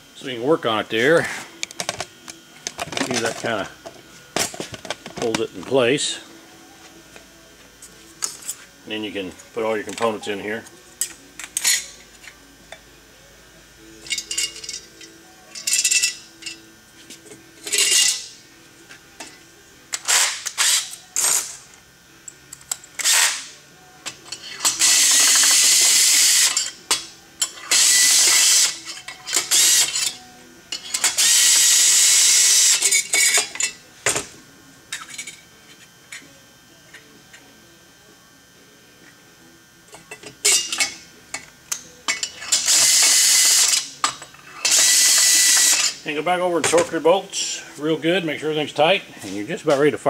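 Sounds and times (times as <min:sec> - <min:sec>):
metal parts and tools clinking: 0:14.0 - 0:16.6
cordless drill running: 0:27.7 - 0:28.8, 0:31.2 - 0:32.8, 0:42.6 - 0:43.7, 0:44.7 - 0:45.8.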